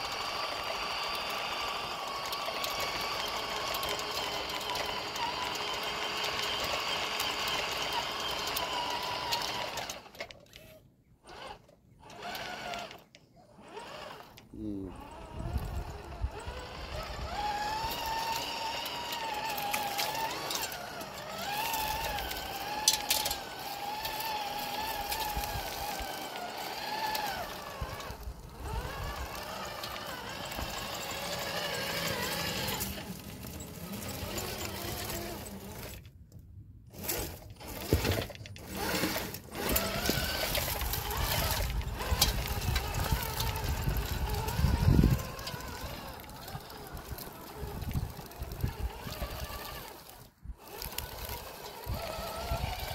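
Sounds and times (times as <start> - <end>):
small electric motor whining: 0.0 - 36.2, 36.9 - 52.9.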